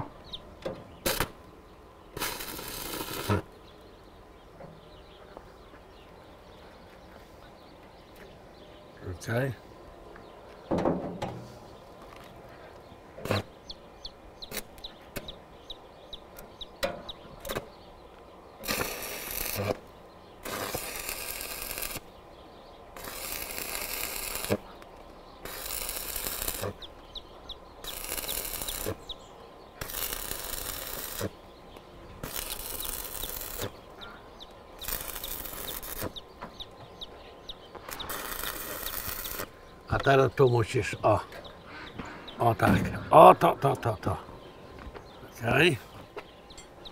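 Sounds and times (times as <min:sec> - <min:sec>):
arc welder crackling: 0:01.0 - 0:01.5, 0:02.2 - 0:03.5, 0:14.4 - 0:15.3, 0:18.6 - 0:22.1, 0:23.0 - 0:26.9, 0:27.8 - 0:29.1, 0:29.8 - 0:31.4, 0:32.2 - 0:36.8, 0:37.7 - 0:39.6.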